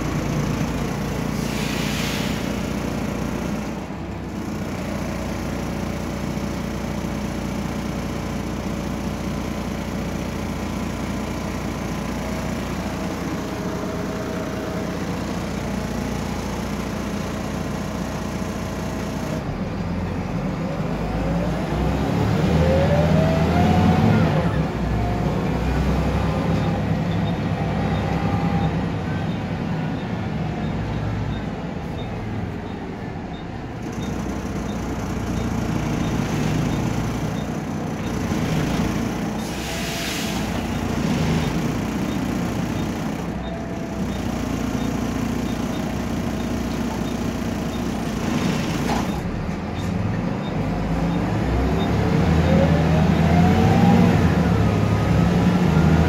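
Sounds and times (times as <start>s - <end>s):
bus diesel engine running: 0.0s - 56.0s
air hiss: 1.4s - 2.6s, 39.4s - 40.5s.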